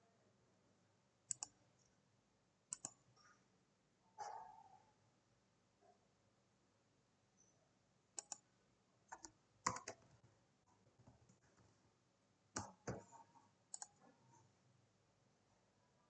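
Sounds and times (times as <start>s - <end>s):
computer keyboard keystrokes: 1.3s - 1.5s, 2.7s - 3.0s, 8.2s - 8.4s, 9.1s - 10.1s, 13.7s - 14.0s
mouse clicks: 1.3s - 1.6s, 2.7s - 3.0s, 8.2s - 8.4s, 9.1s - 10.0s, 12.6s - 13.1s, 13.7s - 14.0s.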